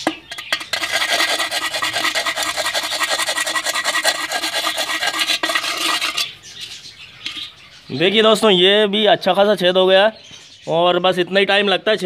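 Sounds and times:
metal rod rasping on clay pot: 0:00.0 - 0:06.5.

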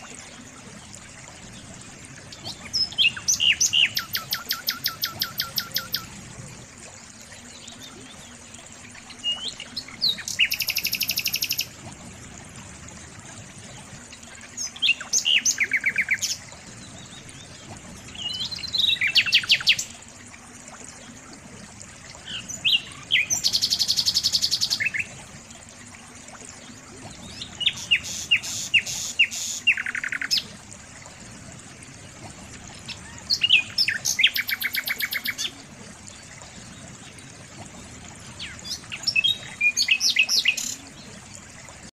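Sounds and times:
songbird chirping and trilling: 0:02.4 - 0:06.1, 0:32.8 - 0:35.6.

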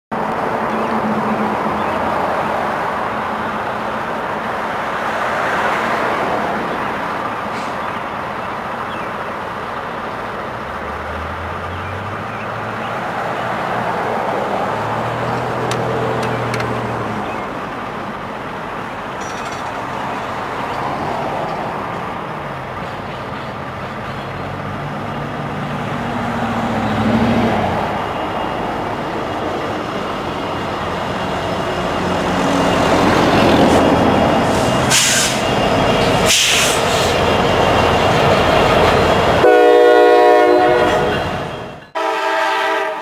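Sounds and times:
engine hum: 0:00.2 - 0:41.6
tyres hissing: 0:27.9 - 0:39.4.

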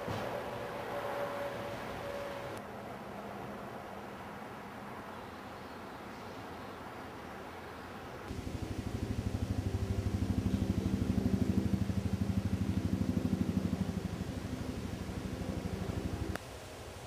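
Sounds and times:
vehicle engine throbbing: 0:08.3 - 0:16.4.

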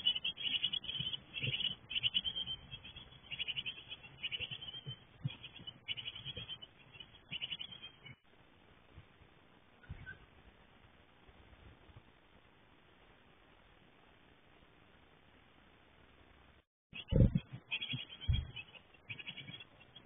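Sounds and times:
nestlings buzzy begging chatter: 0:00.0 - 0:08.2, 0:17.0 - 0:20.0.

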